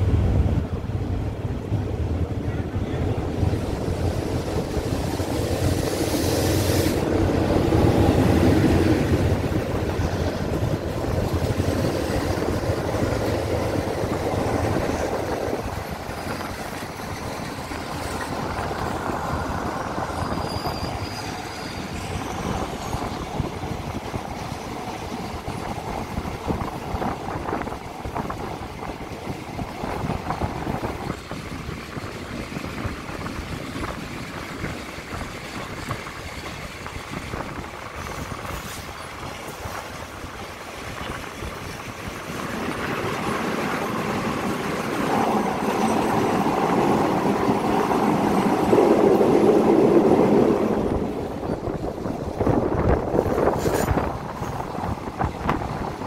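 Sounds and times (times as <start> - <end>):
train wheels on rails: 0.0 - 56.0.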